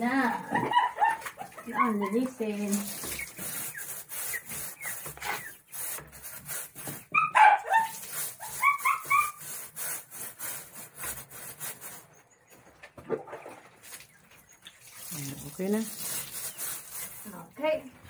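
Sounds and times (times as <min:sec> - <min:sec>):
scraping on wooden slats: 0:02.8 - 0:12.1.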